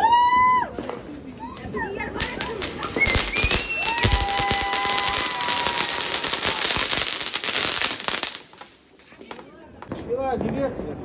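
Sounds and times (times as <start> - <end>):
firework fountain hissing and crackling: 0.0 - 11.0.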